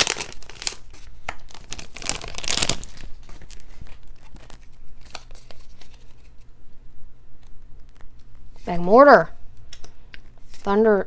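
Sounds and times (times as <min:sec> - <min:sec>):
foil wrapper crinkling and tearing: 0:00.0 - 0:06.2.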